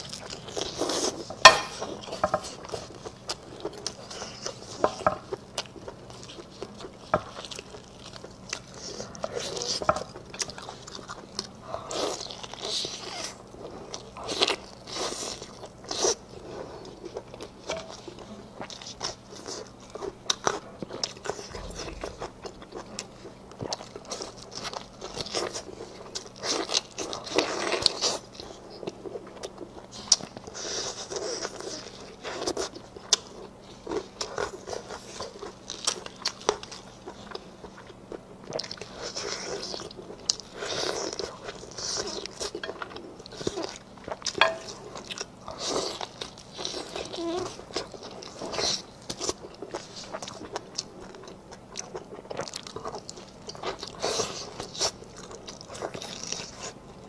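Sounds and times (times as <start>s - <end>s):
faint steady hum: 0.0s - 57.0s
wet chewing and smacking: 0.0s - 57.0s
biting and tearing meat: 18.7s - 29.0s.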